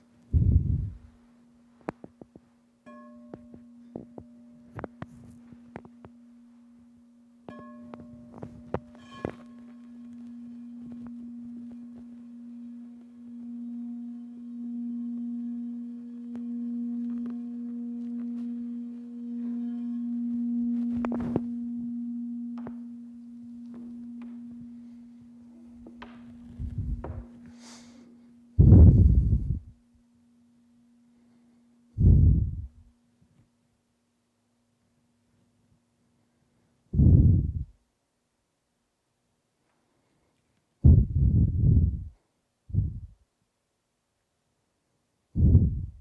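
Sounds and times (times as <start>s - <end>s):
low bell-like ringing tone: 0.2s - 1.8s, 2.8s - 33.2s, 37.0s - 37.7s.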